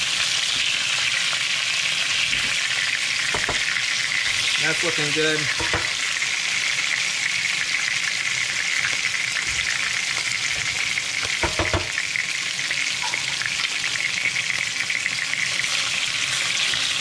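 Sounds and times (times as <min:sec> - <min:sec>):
fish frying in hot oil: 0:00.0 - 0:17.0.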